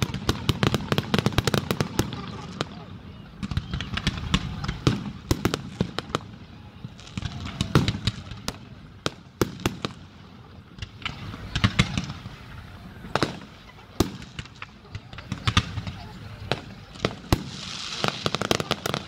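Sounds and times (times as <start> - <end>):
fireworks cracking and banging: 0.0 - 19.0.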